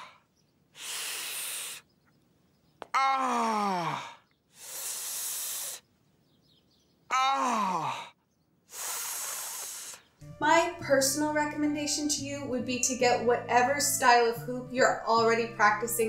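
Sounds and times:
man hissing breaths through teeth: 0.0 - 1.9, 4.0 - 5.9, 8.7 - 10.1
man groaning: 2.9 - 4.2, 7.1 - 8.1.

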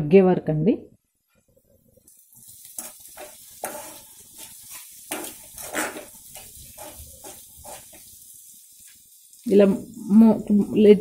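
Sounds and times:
tomatoes sizzling in hot oil: 1.5 - 11.0
ladle scraping and knocking a pot: 5.1 - 8.0.

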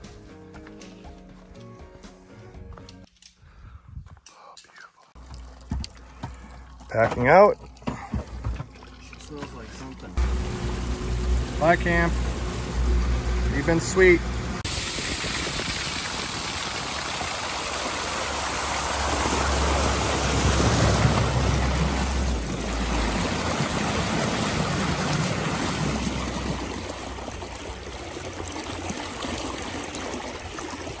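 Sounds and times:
water splashing against boat hull: 15.9 - 31.0.

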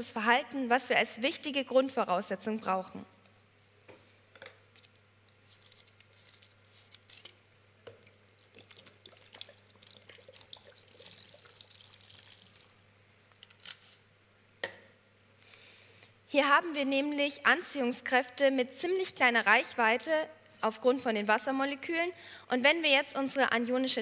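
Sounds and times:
water pouring into plastic container: 8.4 - 12.8.

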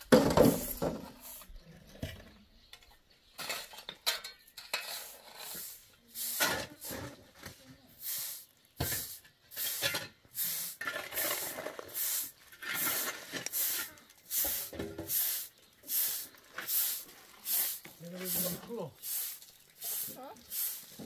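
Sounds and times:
hand broom sweeping ground: 4.7 - 21.0.

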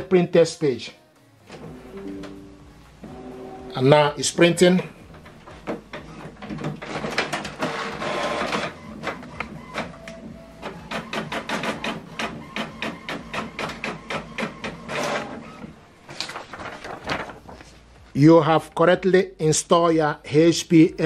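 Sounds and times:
printer whirring and clicking: 3.0 - 3.8, 4.9 - 17.7
printer ticking: 4.4 - 16.4.

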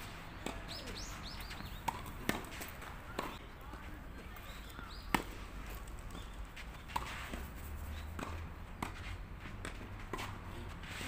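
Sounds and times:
tennis balls struck by rackets: 0.0 - 11.0.

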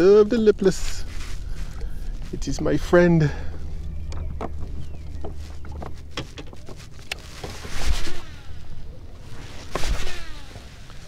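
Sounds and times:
fishing rod cast swish: 7.6 - 8.5.

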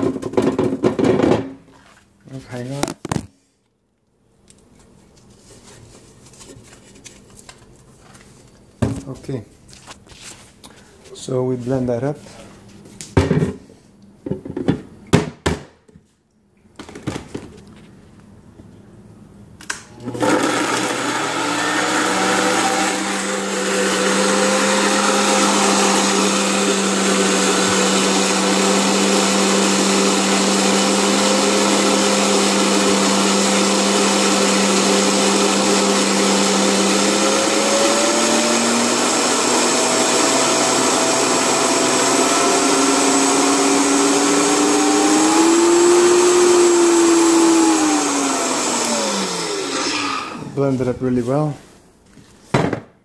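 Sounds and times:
blender running: 19.9 - 50.6.

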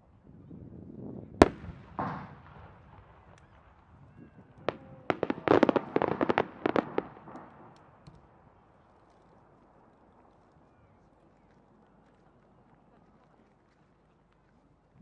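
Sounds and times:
fireworks volley of sharp bangs: 1.4 - 7.8
fireworks bangs: 1.4 - 8.1.

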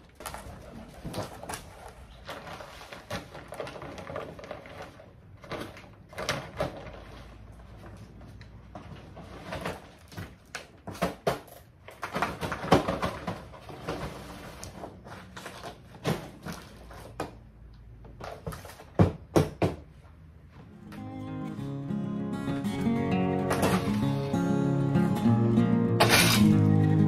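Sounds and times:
heavy paper rustling: 0.0 - 10.4
acoustic guitar music: 20.7 - 27.0.

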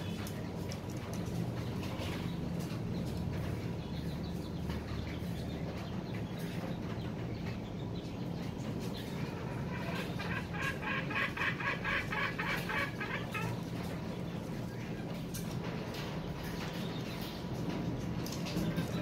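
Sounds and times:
junglefowl calling: 9.2 - 13.6.

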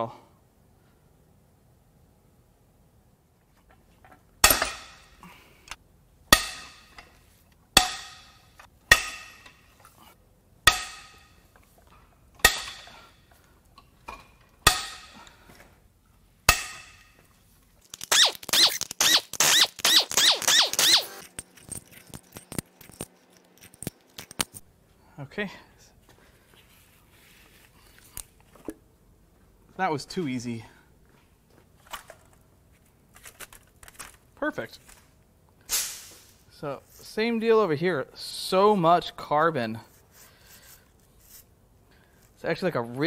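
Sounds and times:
sharp metal clanks: 4.4 - 5.2, 6.3 - 7.2, 7.8 - 9.7, 10.6 - 11.5, 12.4 - 13.1, 14.6 - 15.3, 16.5 - 17.2
loose metal pieces rattling: 19.7 - 24.6.

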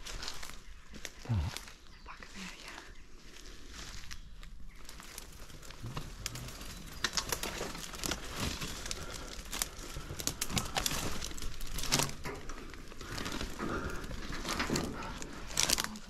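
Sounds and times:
rustling: 0.0 - 16.0.

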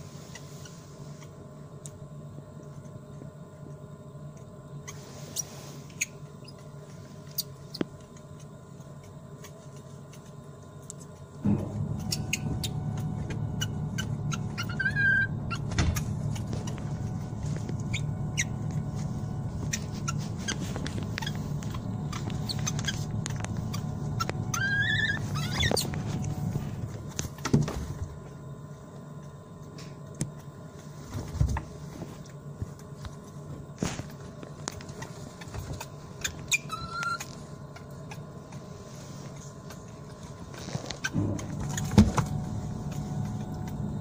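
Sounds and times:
ventilation hum: 0.0 - 44.0
infant monkey high call: 13.6 - 15.7, 23.7 - 25.8, 36.5 - 37.3.

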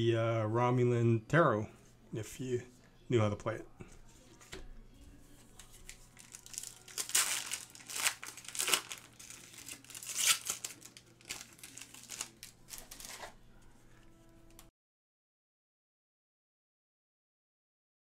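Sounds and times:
foil wrapper crinkling and tearing: 5.6 - 13.4.

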